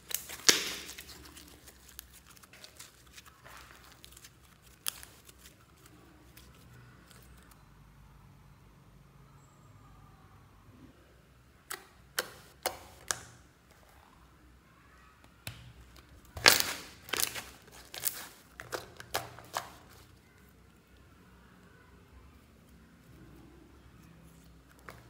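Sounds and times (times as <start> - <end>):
slime clicking and popping: 0.0 - 5.3, 11.7 - 13.4, 15.5 - 20.0
slime squelching: 0.0 - 7.5, 11.7 - 14.1, 15.5 - 21.2, 22.5 - 25.0.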